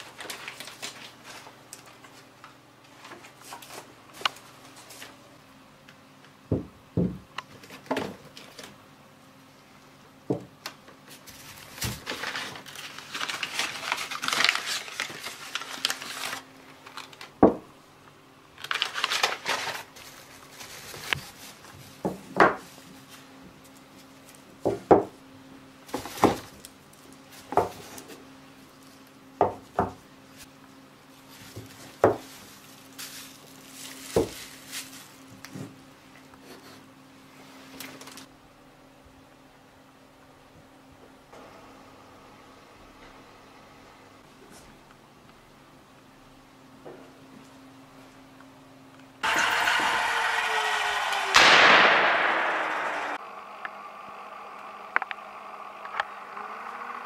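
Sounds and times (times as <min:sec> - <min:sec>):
plastic wrapping crinkling: 0:00.0 - 0:02.3, 0:11.1 - 0:17.4, 0:18.6 - 0:24.5, 0:31.1 - 0:35.5.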